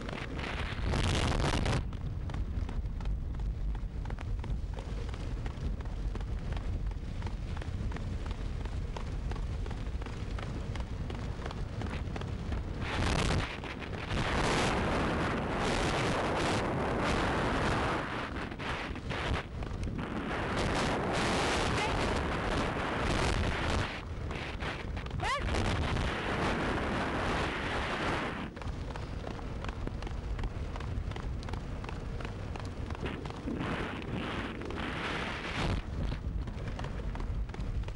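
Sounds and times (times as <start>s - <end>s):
wind buffeting microphone: 0.0s - 37.9s
rig rumbling over pavement: 27.9s - 37.9s.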